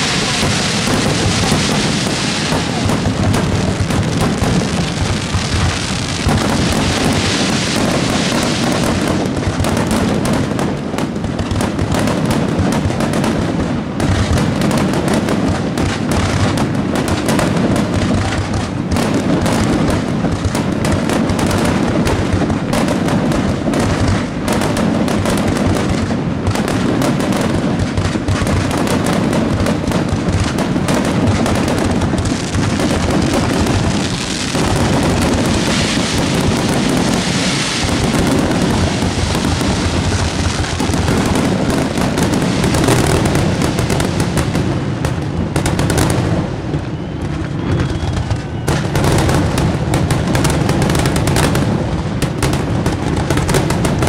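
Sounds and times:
fireworks bursting and crackling: 0.0s - 54.0s.

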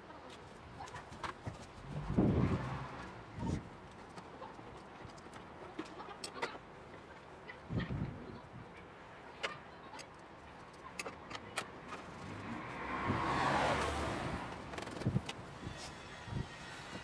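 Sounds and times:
vehicle passing by: 1.6s - 3.7s, 11.8s - 17.0s.

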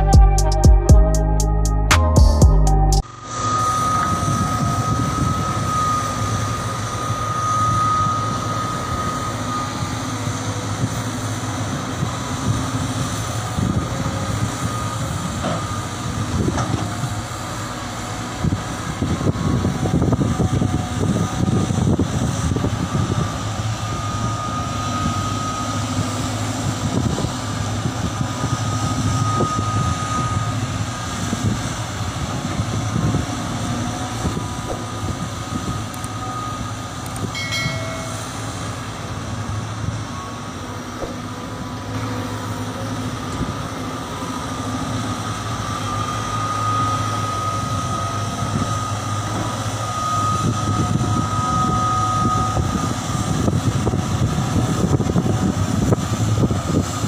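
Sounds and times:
thin high whine: 0.0s - 10.6s, 34.3s - 42.6s, 45.4s - 54.1s
excavator diesel engines running: 0.0s - 57.0s.

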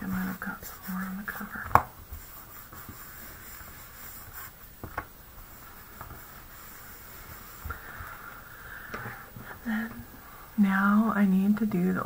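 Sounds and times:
rag rubbing on paper: 0.0s - 8.3s.

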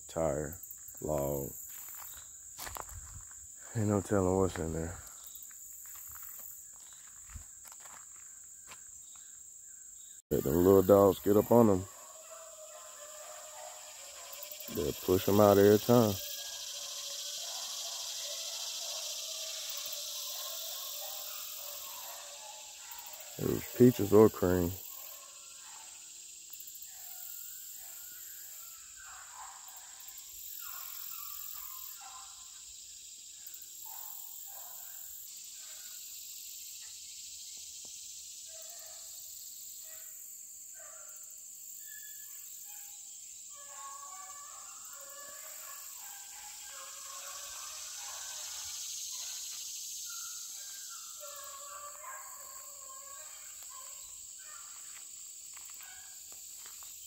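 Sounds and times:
high drone of insects: 0.0s - 57.0s
hounds baying faintly: 10.3s - 32.8s, 33.4s - 36.1s, 38.4s - 57.0s.

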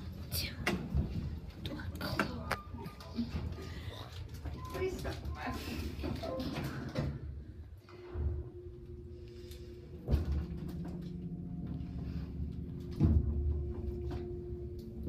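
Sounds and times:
elevator machinery hum: 7.2s - 15.0s.

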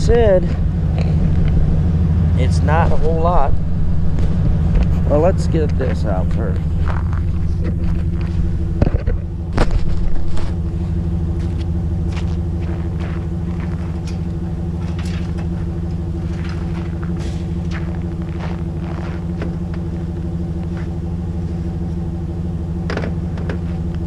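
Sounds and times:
pickup truck idling: 0.0s - 24.0s
gear knocking and clattering: 2.9s - 10.7s, 11.4s - 20.0s.

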